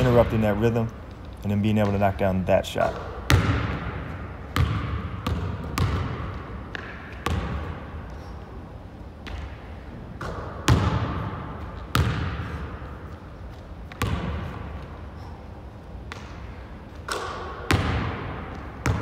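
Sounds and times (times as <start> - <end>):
basketball bouncing on hardwood floor: 3.3 - 7.8, 10.2 - 12.6, 13.9 - 14.6, 17.2 - 19.0.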